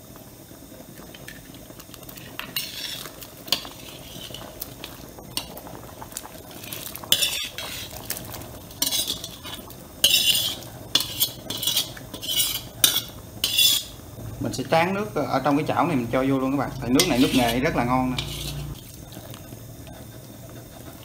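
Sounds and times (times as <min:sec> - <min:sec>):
metal ladle scraping a wok: 0:02.3 - 0:04.6, 0:06.5 - 0:14.0, 0:16.7 - 0:18.8.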